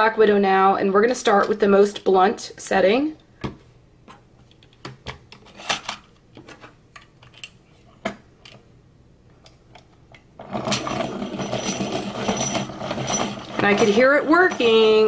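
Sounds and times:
plastic clicks and clatter: 4.4s - 7.6s.

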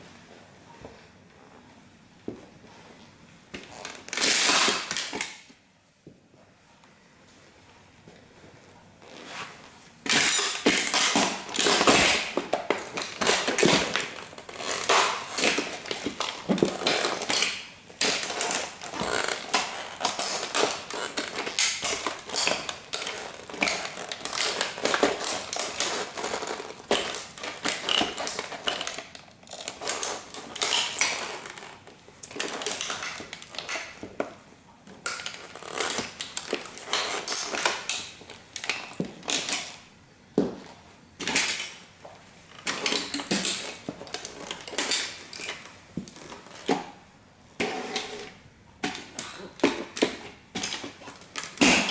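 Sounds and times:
toy car cracking under boots: 10.1s - 34.0s, 48.8s - 51.9s.

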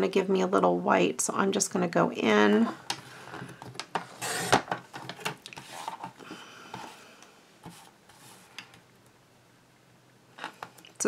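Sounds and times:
card stock rustling: 3.3s - 6.2s.

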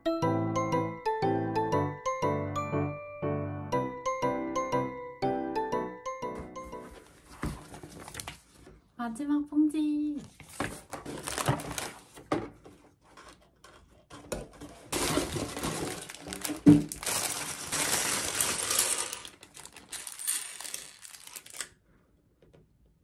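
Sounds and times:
plastic bags crinkling and tearing: 10.6s - 12.2s, 14.9s - 21.8s
plastic bricks clattering on table: 14.9s - 21.7s.

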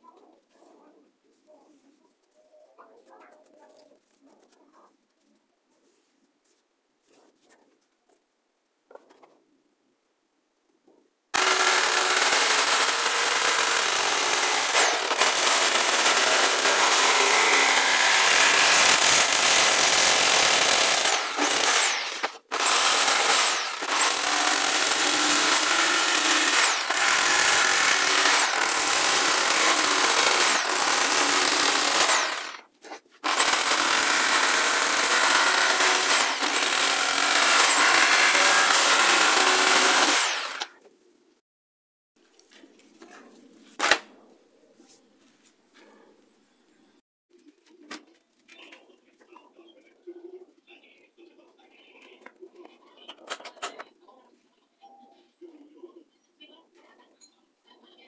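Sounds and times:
electric jigsaw cutting plastic: 11.4s - 40.8s.

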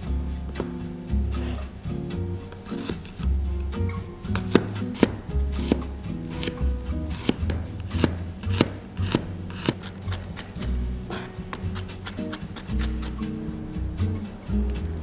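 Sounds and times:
knife chopping on plastic board: 4.4s - 13.2s.

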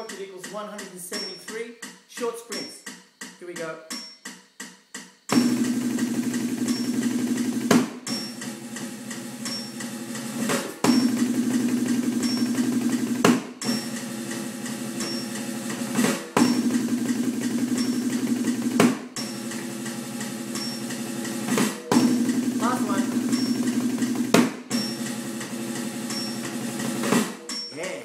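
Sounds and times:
metronome beep: 1.1s - 1.6s
fast drum rolls: 5.3s - 28.0s.

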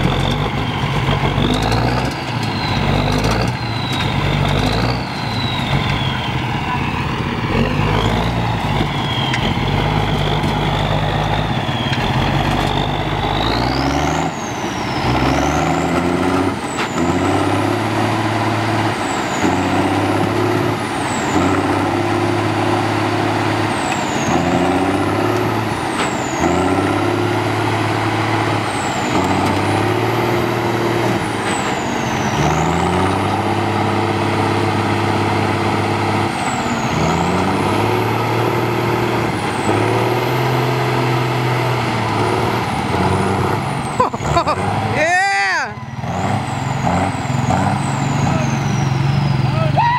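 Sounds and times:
truck engine revving: 0.0s - 49.8s.

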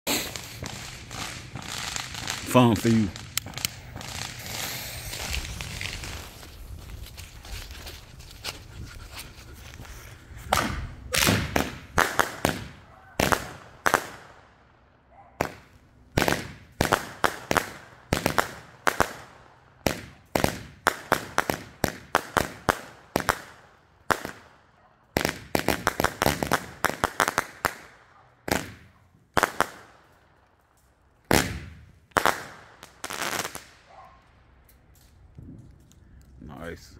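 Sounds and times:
fireworks launching and banging: 0.1s - 8.2s, 10.2s - 14.6s, 15.4s - 24.6s, 25.2s - 30.2s, 31.3s - 33.9s.

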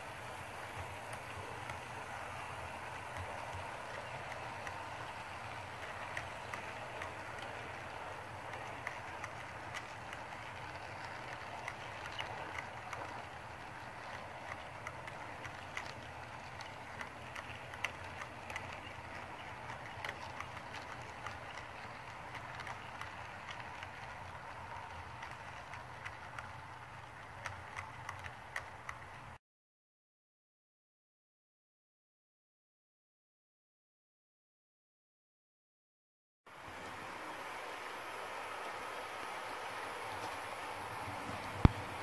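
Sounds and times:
model train cars rolling: 0.0s - 29.4s, 36.6s - 42.0s
wheel clicks on rails: 0.0s - 29.4s.

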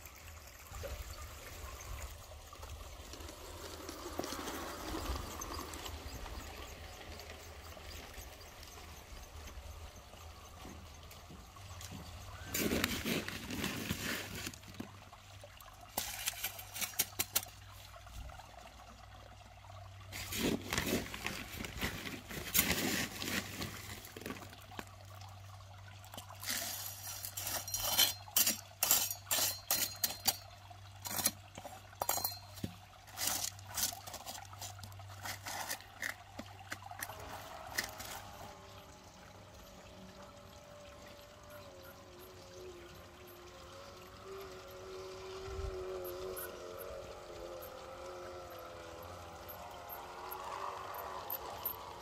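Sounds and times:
gravel stones rattling: 0.8s - 15.0s, 20.2s - 25.0s, 26.1s - 43.9s.

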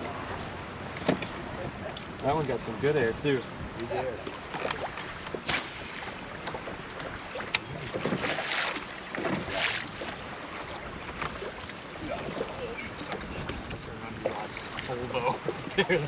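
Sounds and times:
small waves lapping against boat hull: 0.0s - 16.0s
wind on microphone: 3.0s - 15.9s
short splashes: 4.2s - 16.0s.

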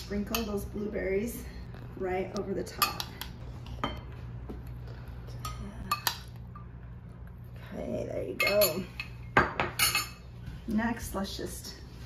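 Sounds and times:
metal spoon clinking on glass: 8.4s - 9.1s.

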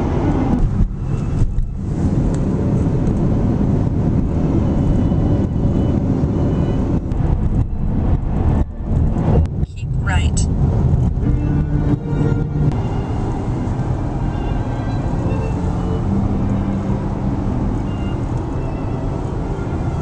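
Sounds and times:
car road noise rumble: 0.0s - 20.0s.

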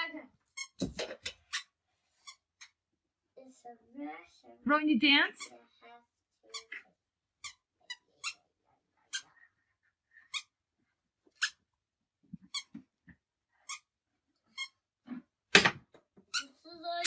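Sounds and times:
squeaker shoes squeaking: 0.5s - 0.9s, 11.4s - 11.6s, 12.5s - 12.8s.

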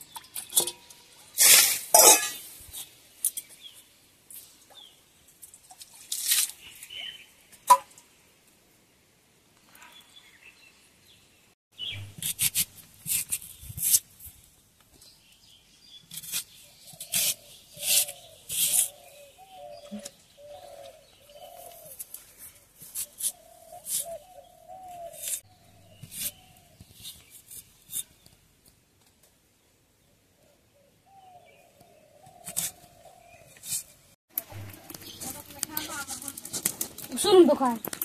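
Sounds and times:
knife scraping mango: 12.1s - 14.1s, 16.1s - 19.1s, 22.9s - 24.3s, 25.0s - 28.2s
bird calling: 16.8s - 22.0s, 23.1s - 27.3s.

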